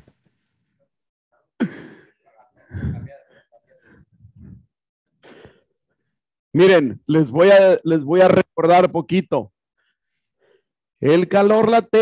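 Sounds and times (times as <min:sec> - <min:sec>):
person sighing: 0:01.6 - 0:02.1, 0:02.7 - 0:03.2
person murmuring: 0:02.6 - 0:04.7.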